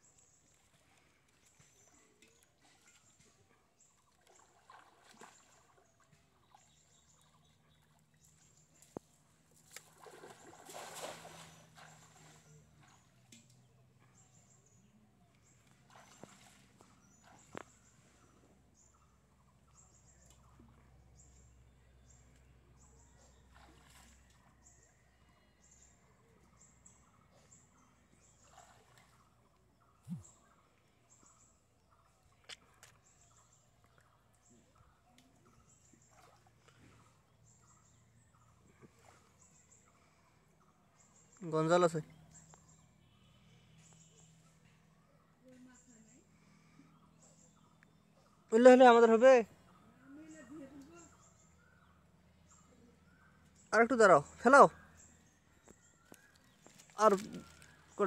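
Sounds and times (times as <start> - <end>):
water sloshing and dripping: 0.0 - 14.5, 15.3 - 18.6, 23.1 - 25.0, 27.6 - 42.8, 55.6 - 58.0
faint bird calls: 0.0 - 58.0
water splashing: 4.0 - 7.3, 9.5 - 13.2, 15.8 - 17.8, 56.7 - 58.0.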